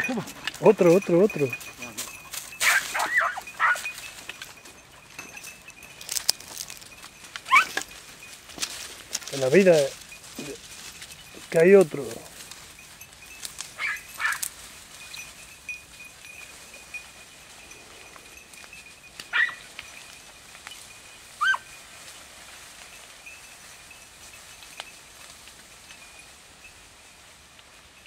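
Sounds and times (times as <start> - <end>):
hounds yelping: 0.0 - 8.3, 13.6 - 15.2, 19.2 - 19.9, 21.4 - 21.8.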